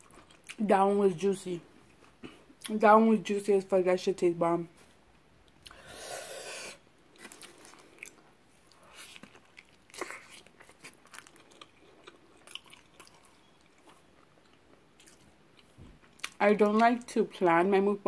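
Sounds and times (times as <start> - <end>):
chewing and biting food: 7.1 - 16.9.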